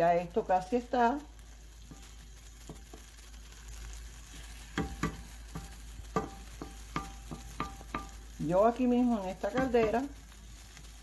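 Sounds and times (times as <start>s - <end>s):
rice sizzling in oil: 0.0s - 11.0s
wooden spoon knocking on pan: 1.8s - 3.1s, 4.7s - 10.2s.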